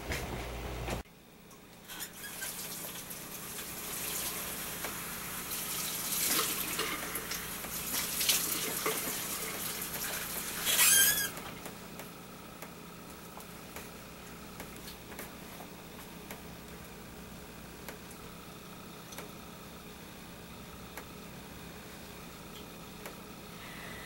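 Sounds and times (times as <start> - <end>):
sink tap running: 1.9 - 19.5
tap squeal: 10.6 - 11.4.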